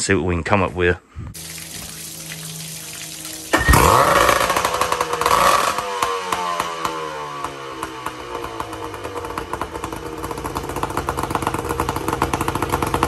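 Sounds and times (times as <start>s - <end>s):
outboard motor running and revving: 3.2s - 13.0s.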